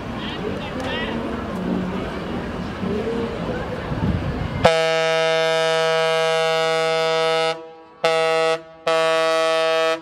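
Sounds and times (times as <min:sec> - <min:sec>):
ship's horn blasts: 0:04.6 - 0:10.0.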